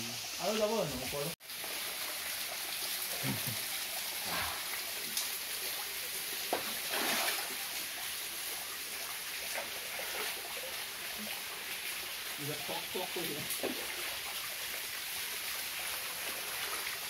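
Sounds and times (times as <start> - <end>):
water rushing over rock: 6.6 - 7.6.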